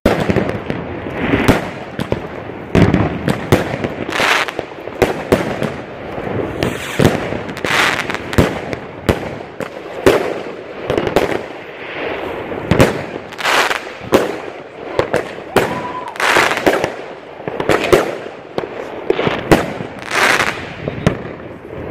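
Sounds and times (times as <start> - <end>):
fireworks bangs: 0.0 - 21.9
fireworks hissing: 0.2 - 21.9.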